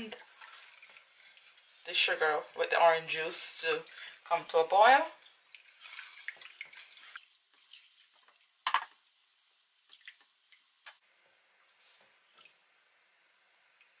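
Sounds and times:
spatula stirring syrup in a pan: 0.0 - 4.5, 5.2 - 11.0.

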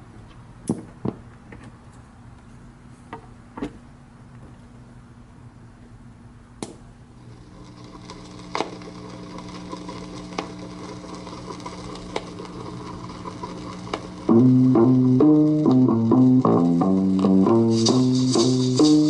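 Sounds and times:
vinyl record pops: 6.6 - 19.0
vinyl surface hiss: 6.6 - 19.0
music with bass and guitar: 14.2 - 19.0.

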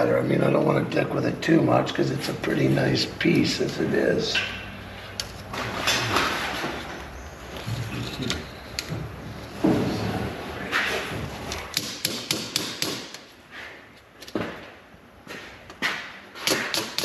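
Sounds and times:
hammer tapping on wood: 11.8 - 13.2.

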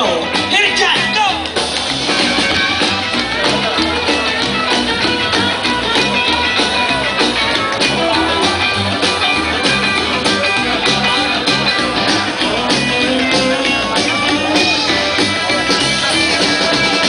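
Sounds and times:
drum beat: 0.0 - 17.0
rockabilly band playing: 0.0 - 17.0
upright bass line: 0.0 - 17.0.

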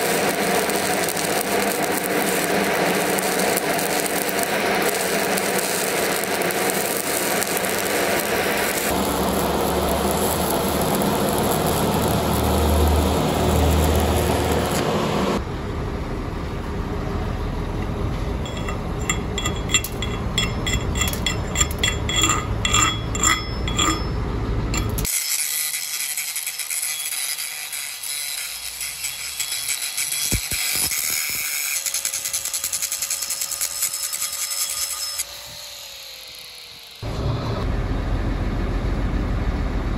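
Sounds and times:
welding arc crackling and hissing: 0.0 - 15.4, 24.8 - 37.1
light metallic clinks: 18.4 - 25.1.

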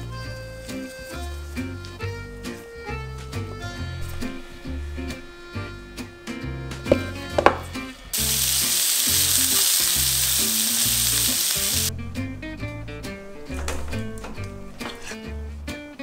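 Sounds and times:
background music: 0.0 - 16.0
meat sizzling in a pan: 8.1 - 11.9.

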